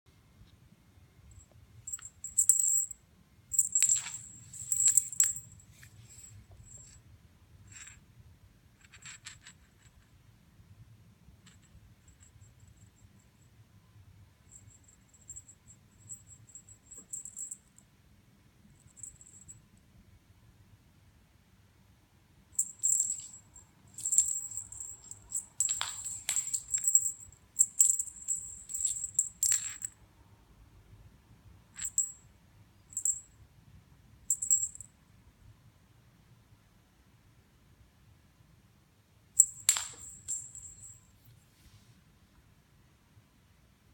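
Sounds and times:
small bell jingling: 0:01.3 - 0:05.7, 0:14.5 - 0:17.8, 0:22.6 - 0:30.0, 0:31.8 - 0:32.3, 0:32.9 - 0:33.4, 0:34.3 - 0:34.9, 0:39.4 - 0:41.1.

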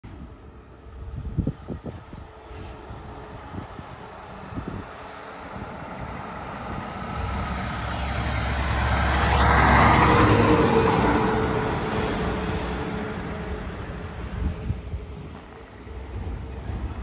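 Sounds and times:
truck engine driving past: 0:04.2 - 0:17.0.

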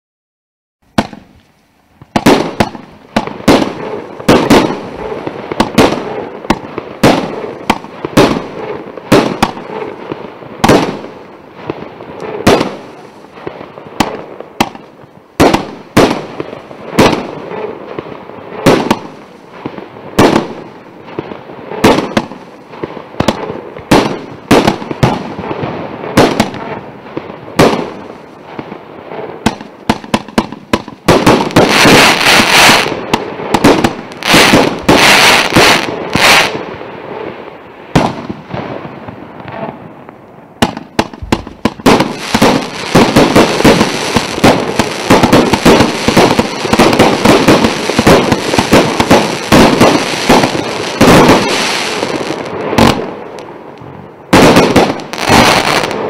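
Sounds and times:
fireworks bangs: 0:00.9 - 0:56.0
fireworks hissing: 0:31.2 - 0:37.2, 0:40.7 - 0:53.4.

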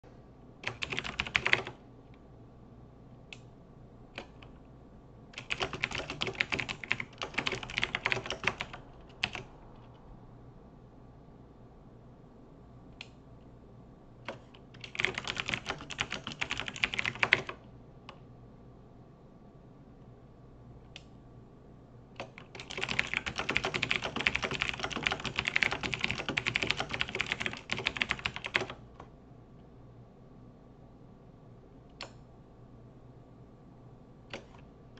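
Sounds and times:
typing on computer keyboard: 0:00.6 - 0:01.8, 0:04.2 - 0:04.5, 0:05.4 - 0:09.5, 0:14.3 - 0:17.6, 0:22.2 - 0:29.1, 0:34.3 - 0:34.6.

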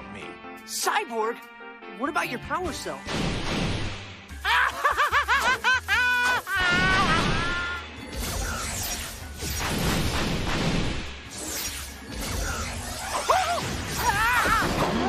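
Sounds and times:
dramatic action music: 0:00.6 - 0:15.0
small bomb blasts: 0:03.1 - 0:04.2, 0:09.4 - 0:11.3
cartoon villain cackling: 0:04.4 - 0:07.8.

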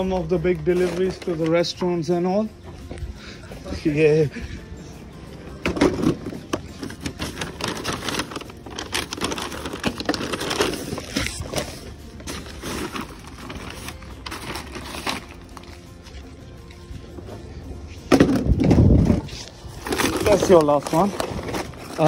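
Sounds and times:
paper bags rustling: 0:00.0 - 0:02.2, 0:05.7 - 0:16.8, 0:18.2 - 0:22.0.

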